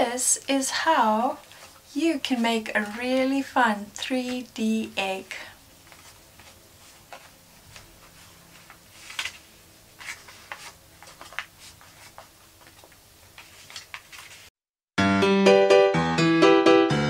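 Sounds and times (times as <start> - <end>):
paper rustling: 5.8 - 14.5
electric piano music: 15.0 - 17.0.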